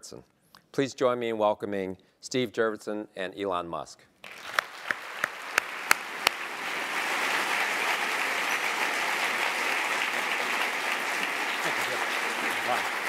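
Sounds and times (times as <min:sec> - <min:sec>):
audience applauding: 0:04.2 - 0:13.0.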